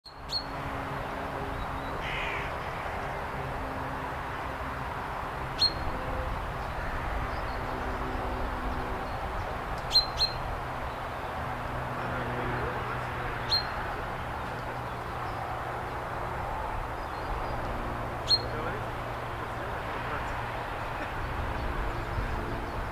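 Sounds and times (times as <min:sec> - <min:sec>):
steady background noise: 0:00.1 - 0:22.9.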